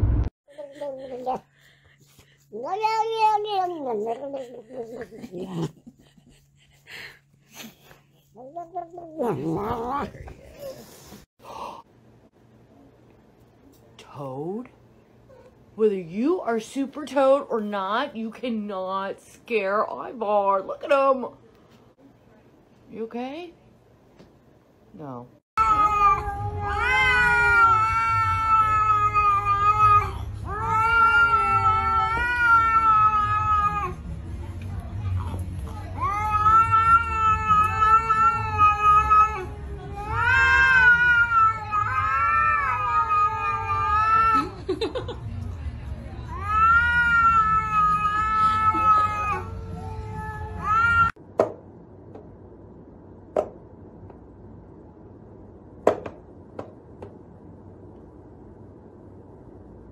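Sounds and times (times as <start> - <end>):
cat yowling: 25.6 - 34.0, 35.9 - 44.6, 46.3 - 51.2.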